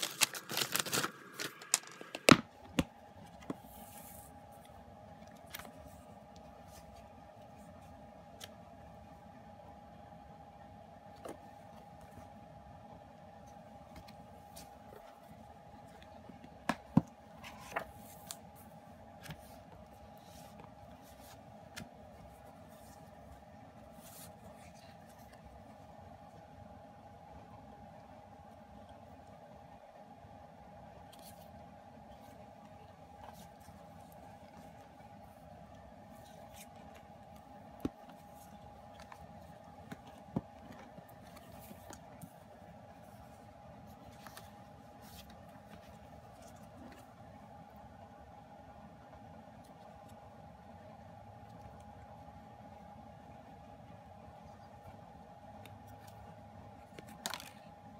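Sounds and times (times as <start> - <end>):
paper and card rustling: 0.0 - 4.7, 16.7 - 25.7, 33.2 - 47.2, 55.8 - 57.7
faint steady hum: 0.0 - 57.9.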